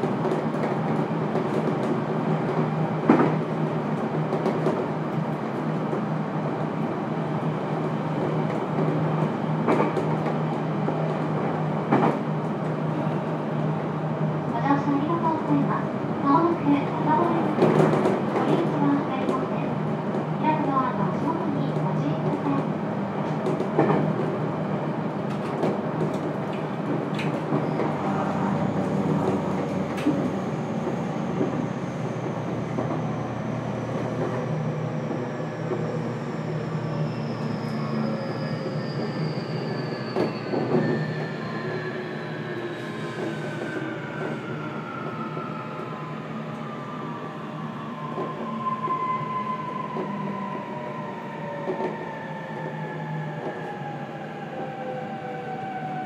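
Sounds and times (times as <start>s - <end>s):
train running noise: 0.0s - 13.4s, 14.4s - 46.8s.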